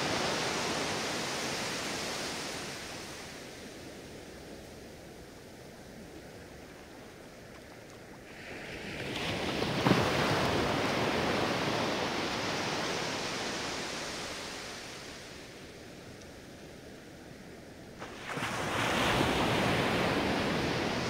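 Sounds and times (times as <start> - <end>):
ocean wave breaking on sand: 0.0 - 3.9, 8.3 - 15.8, 18.0 - 21.0
steady background surf: 0.0 - 21.0.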